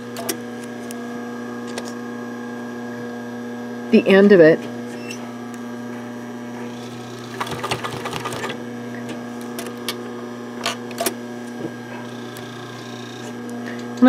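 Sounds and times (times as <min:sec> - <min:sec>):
steady machine hum: 0:00.0 - 0:14.0
sewing machine stitching: 0:06.7 - 0:08.6
sewing machine clicks: 0:07.3 - 0:08.6.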